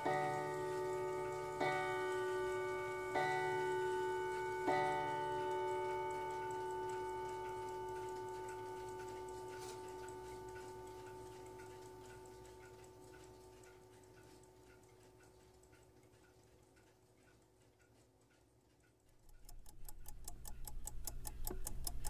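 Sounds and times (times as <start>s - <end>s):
mantel clock striking: 0.0s - 14.8s
clock ticking quickly: 0.0s - 22.0s.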